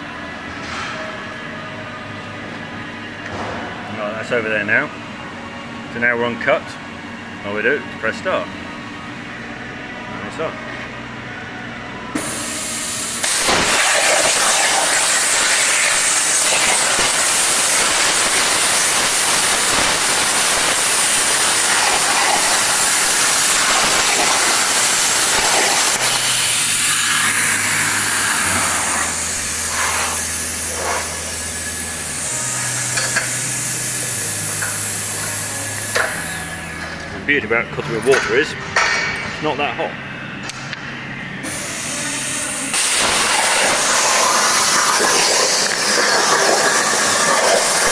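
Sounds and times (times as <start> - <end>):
plasma torch cutting roar: 12.1 - 37.0, 41.4 - 47.9
gas hissing: 12.1 - 37.4, 41.4 - 47.9.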